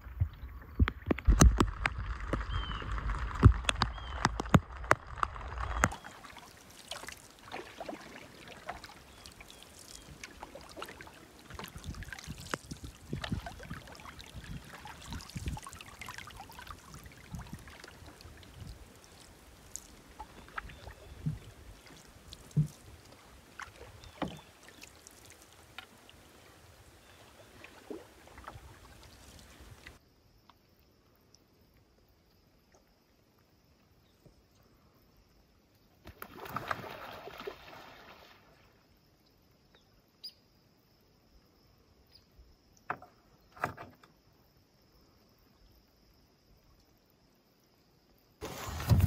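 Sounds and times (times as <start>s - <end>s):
paddle splashes and drips: 0.0s - 35.0s, 35.7s - 39.1s, 48.4s - 49.0s.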